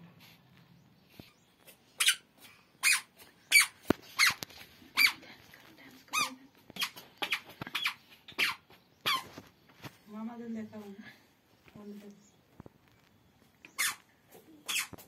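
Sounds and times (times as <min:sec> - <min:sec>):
squeaky sandals squeaking: 0:01.2 - 0:05.3, 0:06.0 - 0:09.7, 0:13.6 - 0:15.0.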